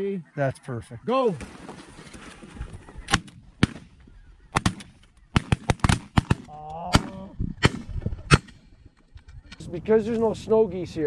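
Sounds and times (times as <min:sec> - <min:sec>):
shotgun shots: 0:03.1 - 0:08.6.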